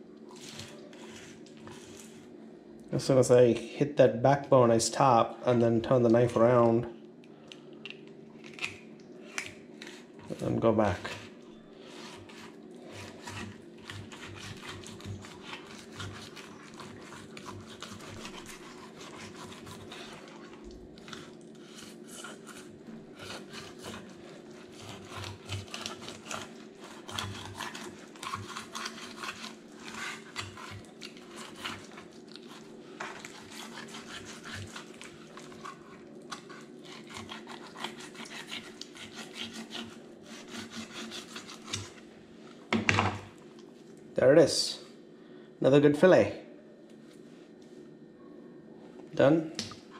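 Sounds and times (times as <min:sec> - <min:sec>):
knife scraping through fish: 0:00.3 - 0:02.3, 0:08.4 - 0:42.1.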